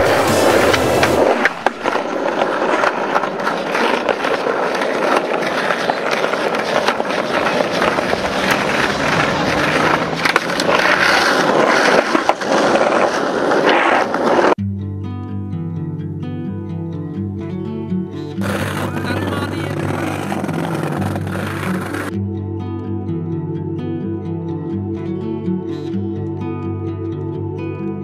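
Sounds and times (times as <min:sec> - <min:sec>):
skateboard sharp clicks: 0:00.0 - 0:14.6, 0:18.4 - 0:22.2
skateboard wheels rumbling on stone: 0:00.0 - 0:14.6, 0:18.4 - 0:22.2.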